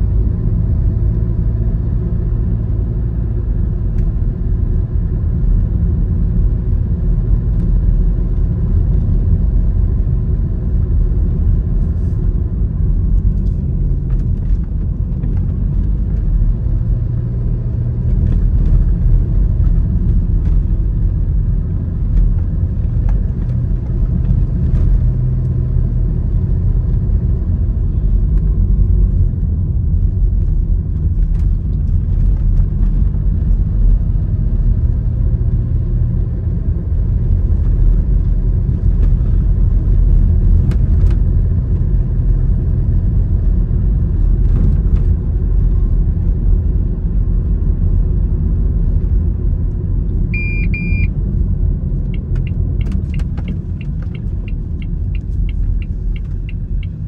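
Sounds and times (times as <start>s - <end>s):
vehicle engine and tyres rumble: 0.0s - 57.0s
short high beep: 50.3s - 51.1s.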